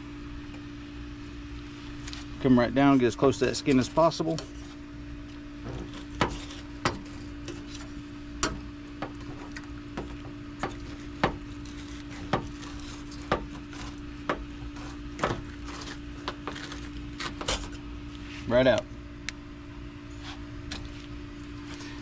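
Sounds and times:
steady hum: 0.0s - 22.0s
knife tapping and scraping fish: 5.7s - 16.7s.

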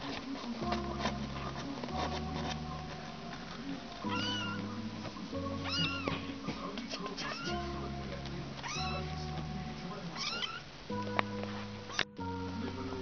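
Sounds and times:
music of slow held chords: 0.0s - 13.0s
kittens mewing: 4.0s - 7.7s, 8.6s - 9.2s, 10.1s - 10.8s.

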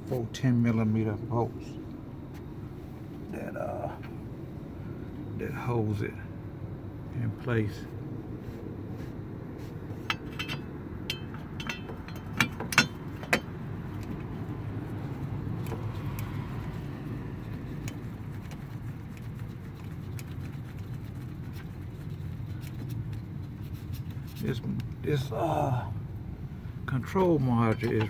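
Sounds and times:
steady low rumble: 0.0s - 28.0s
metallic clinks: 10.1s - 13.5s.

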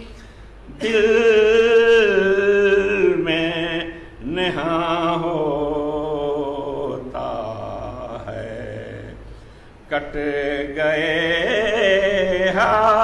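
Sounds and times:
man chanting: 0.7s - 9.2s, 9.9s - 13.0s.

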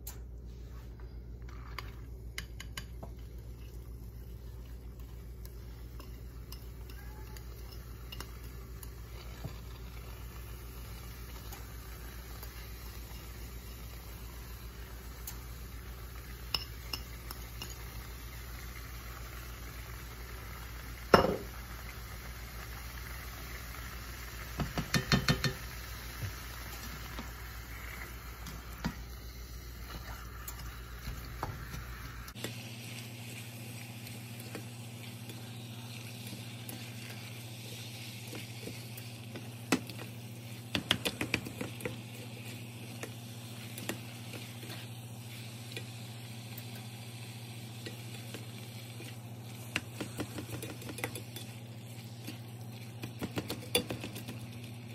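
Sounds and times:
meat and onion sizzling in a skillet: 2.2s - 54.9s
spatula scraping and clacking on pan: 52.3s - 54.4s.

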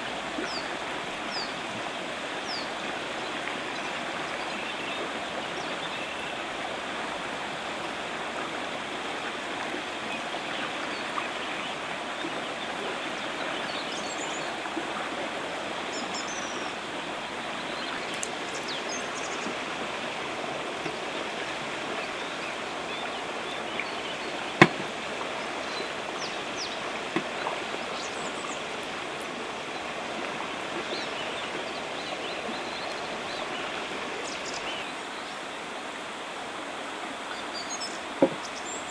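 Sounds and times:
river water rushing: 0.0s - 38.9s
light ticks: 18.1s - 18.4s.

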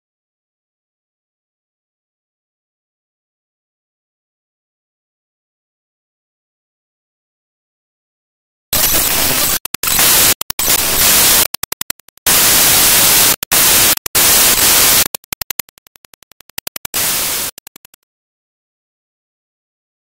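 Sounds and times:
stuttering hissing static: 8.8s - 18.0s.

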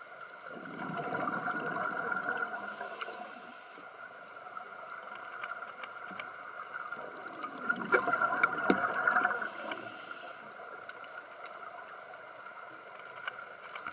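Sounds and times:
steady underwater hiss: 0.0s - 13.9s
exhaled bubbles underwater: 0.4s - 3.5s, 4.4s - 10.0s
small clicks: 10.8s - 13.9s.

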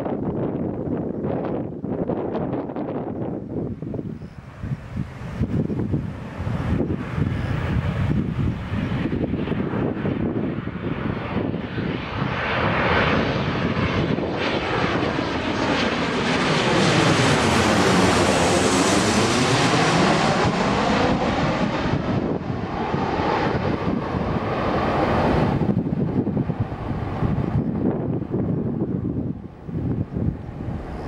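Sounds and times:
jet airliner passing overhead: 0.0s - 31.0s.

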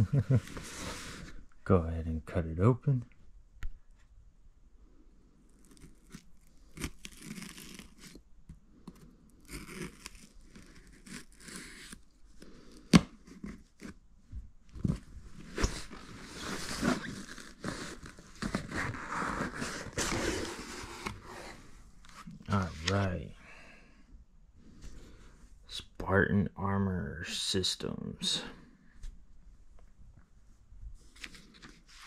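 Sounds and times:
box packaging tearing: 5.6s - 8.2s, 9.4s - 12.0s.

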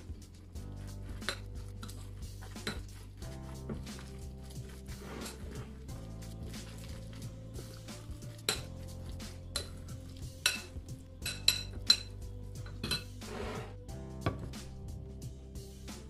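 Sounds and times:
spoon scraping glass bowl: 3.7s - 5.8s, 7.6s - 13.8s.

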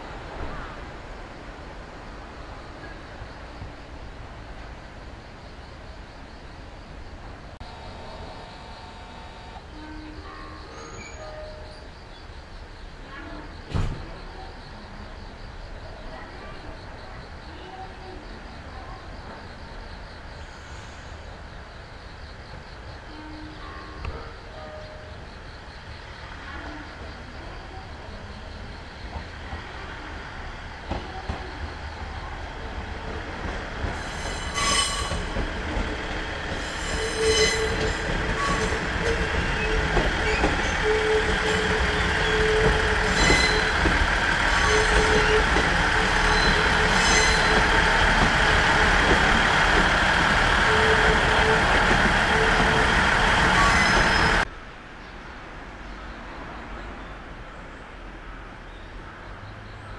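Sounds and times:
electric train arriving: 0.0s - 54.6s
steady-tone squeal: 7.6s - 11.9s, 34.0s - 54.5s.

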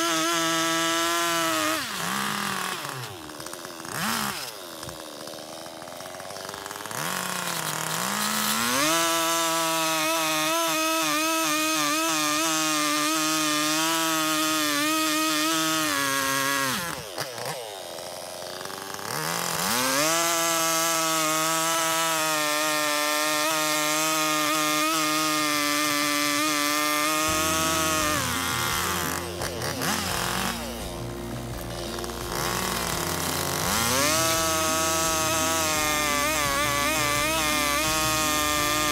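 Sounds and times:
chainsaw cutting log: 0.0s - 38.9s.

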